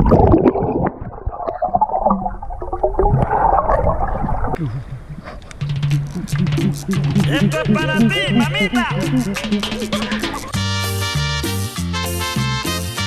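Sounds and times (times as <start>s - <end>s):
underwater water gurgling: 0.0s - 10.5s
music with low bass: 5.6s - 13.0s.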